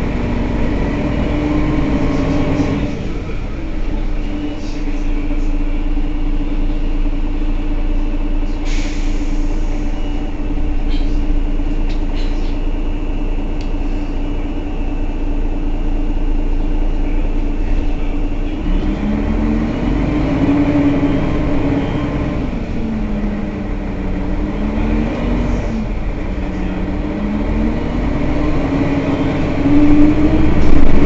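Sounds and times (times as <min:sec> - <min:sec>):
bus engine idling: 0:00.0 - 0:31.0
short air hiss: 0:08.6 - 0:09.9.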